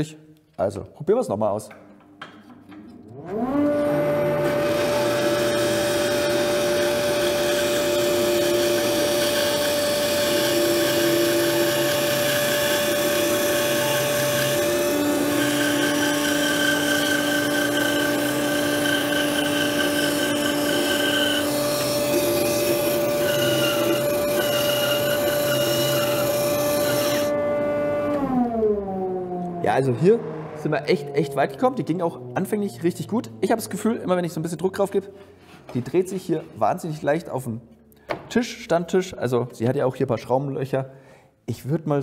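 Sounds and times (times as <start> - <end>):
bandsaw cutting wood: 3.2 - 27.4
bandsaw running down: 4.5 - 27.3.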